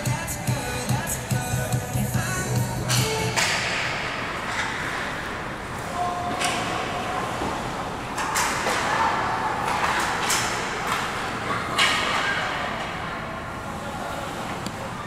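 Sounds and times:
hockey sticks and puck knocking: 0:02.9 - 0:03.9, 0:09.6 - 0:11.2.

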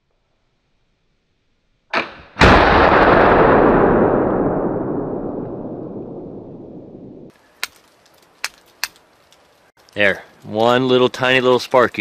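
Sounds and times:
rifle shot with rolling rumble: 0:02.0 - 0:07.3.

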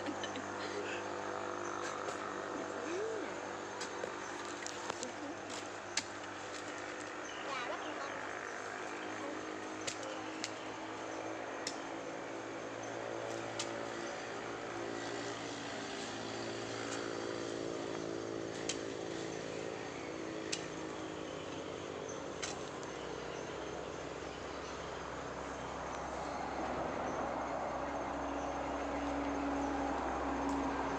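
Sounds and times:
motor drone: 0:00.0 - 0:30.9
hoe striking and scraping soil: 0:22.3 - 0:22.9.

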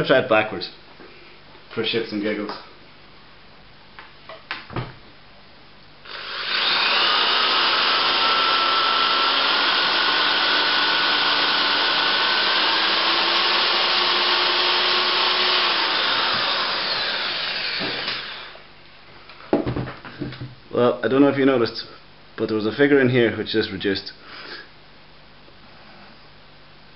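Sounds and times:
power drill motor whine: 0:06.0 - 0:18.6.

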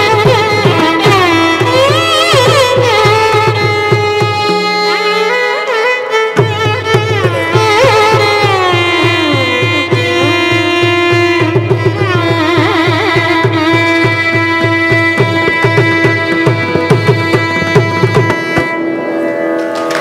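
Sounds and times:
violins playing ornamented melody: 0:00.0 - 0:20.0
hand drum strokes: 0:06.4 - 0:20.0.

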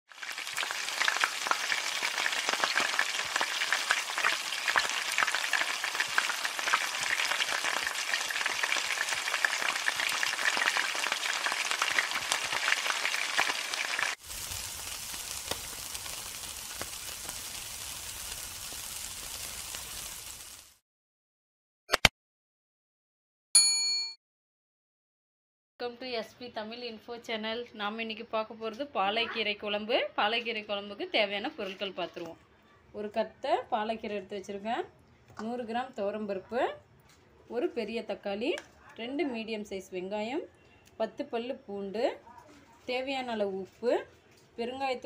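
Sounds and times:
food frying in wok: 0:00.1 - 0:20.8
meat sizzling on grill: 0:00.1 - 0:20.8.

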